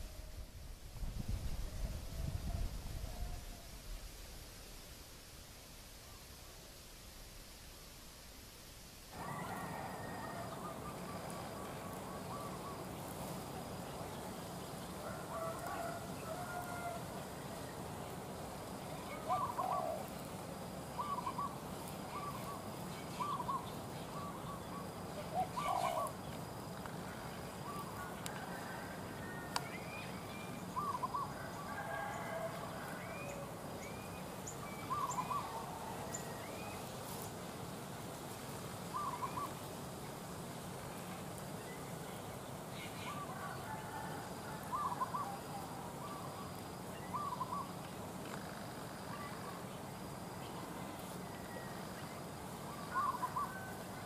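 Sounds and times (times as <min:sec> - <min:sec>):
doves cooing: 0:09.2 - 0:36.9, 0:38.8 - 0:39.7, 0:42.6 - 0:54.0
small birds chirping: 0:17.5 - 0:28.2, 0:33.2 - 0:37.4.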